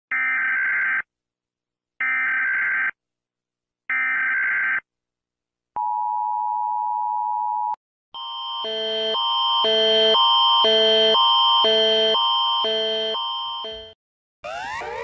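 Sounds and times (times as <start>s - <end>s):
two-tone alert signal: 8.6s - 14.0s.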